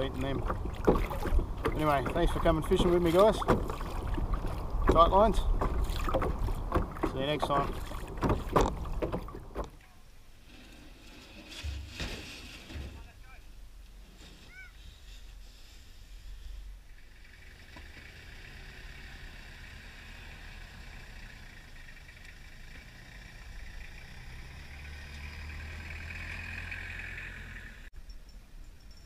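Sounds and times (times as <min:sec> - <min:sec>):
road traffic hiss and rumble: 0:00.0 - 0:27.9
vehicle passing by: 0:17.0 - 0:27.9.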